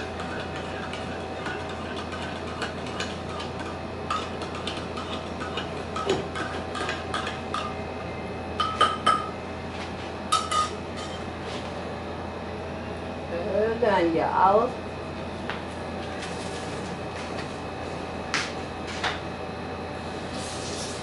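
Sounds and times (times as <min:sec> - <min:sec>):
dishes and utensils clinking: 0:10.3 - 0:11.2.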